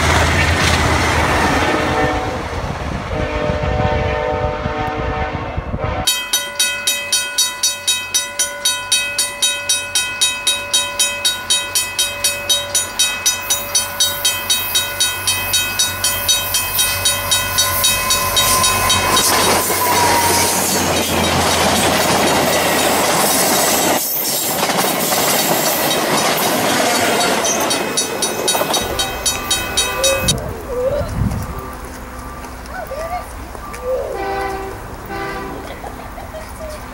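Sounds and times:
train rushing past: 0:00.0 - 0:36.9
level crossing bell ringing: 0:06.1 - 0:22.8, 0:27.0 - 0:30.4.

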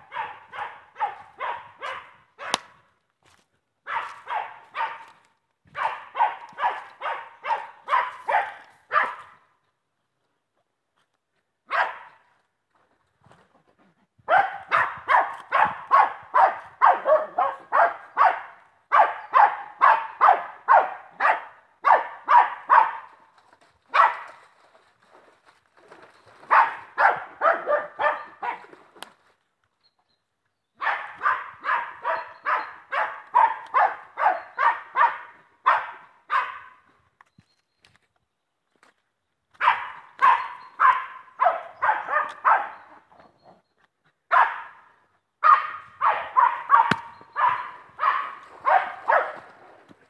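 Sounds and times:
dog barking in rapid runs: 0:00.0 - 0:02.6, 0:03.8 - 0:09.4, 0:11.7 - 0:12.2, 0:14.2 - 0:23.2, 0:23.9 - 0:24.4, 0:26.4 - 0:28.8, 0:30.8 - 0:36.8, 0:39.6 - 0:42.9, 0:44.3 - 0:49.6.

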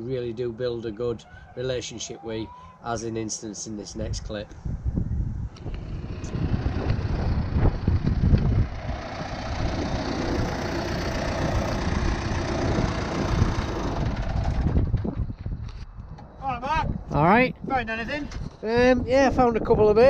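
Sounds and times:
tractor diesel engine running: 0:05.6 - 0:15.4.

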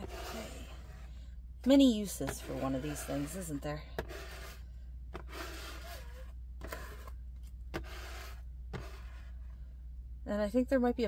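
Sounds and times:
rubbing on a desk: 0:00.0 - 0:01.1, 0:02.0 - 0:04.6, 0:05.2 - 0:07.1, 0:07.7 - 0:09.4.

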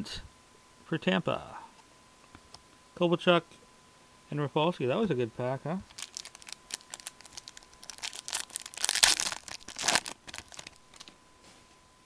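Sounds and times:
foil wrapper crinkling: 0:05.8 - 0:11.2
foil ripping: 0:05.9 - 0:11.1.

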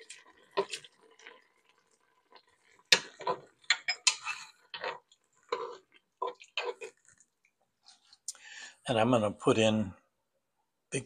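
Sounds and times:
metal spoon clinking on a pot: 0:03.0 - 0:04.5.

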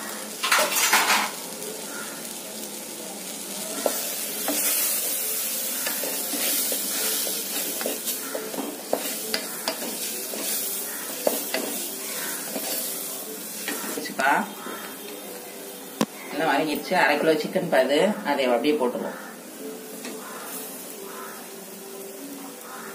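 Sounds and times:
food sizzling in oil: 0:00.0 - 0:22.9.

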